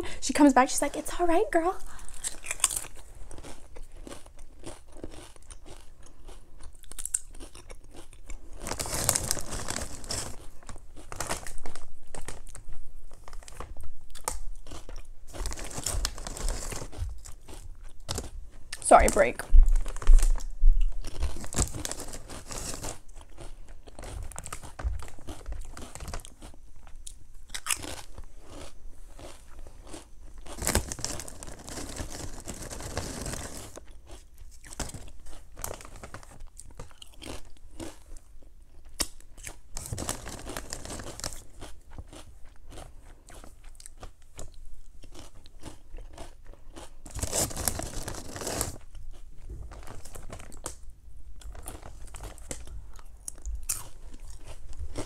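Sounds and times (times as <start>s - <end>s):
chewing crisp chips: 1.8s - 55.0s.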